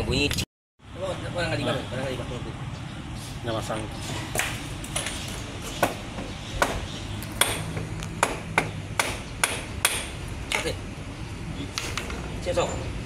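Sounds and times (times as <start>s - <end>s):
hammer striking metal: 6.6s - 10.7s.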